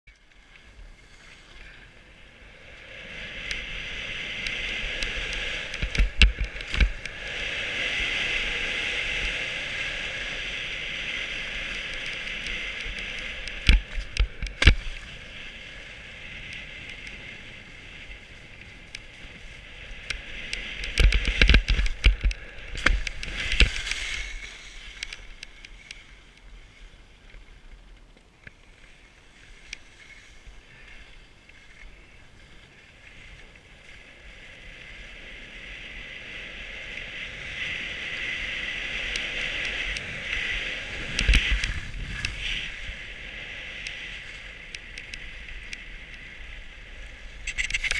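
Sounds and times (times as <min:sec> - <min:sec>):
skis scraping over snow: 0:00.4 - 0:47.9
wind on microphone: 0:02.4 - 0:26.2, 0:32.4 - 0:47.9.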